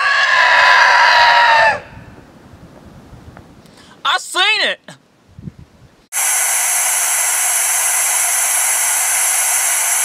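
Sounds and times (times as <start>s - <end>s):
loud static hiss: 6.2s - 10.0s.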